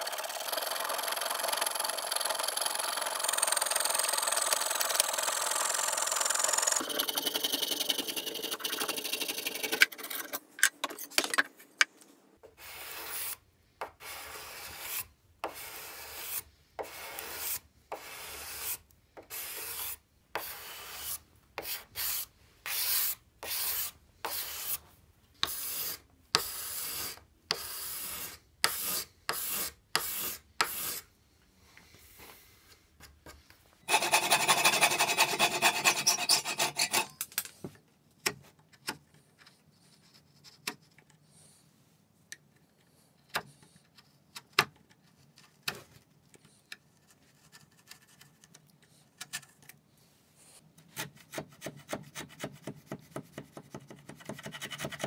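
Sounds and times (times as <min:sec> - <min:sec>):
card scraper shaving wood: 0:00.0 - 0:10.2, 0:33.9 - 0:37.2
coping saw cutting wood: 0:01.4 - 0:10.0, 0:33.9 - 0:37.1.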